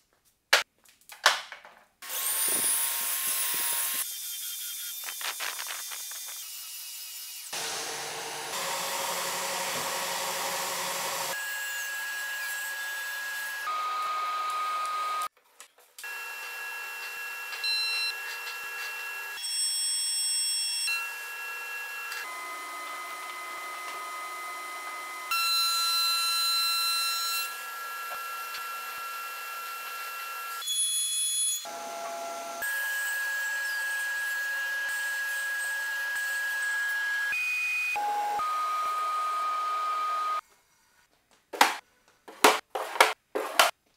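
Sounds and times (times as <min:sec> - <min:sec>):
belt sander: 0:02.0 - 0:15.2
thickness planer whining: 0:07.5 - 0:15.3, 0:20.8 - 0:30.6.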